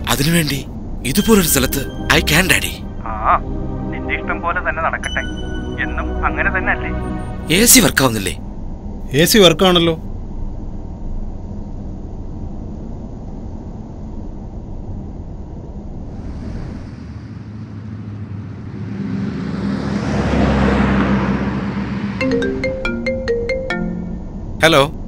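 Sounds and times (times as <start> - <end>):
phone ringtone melody: 1.1 - 8.0, 22.2 - 24.4
whooshing: 15.8 - 20.6.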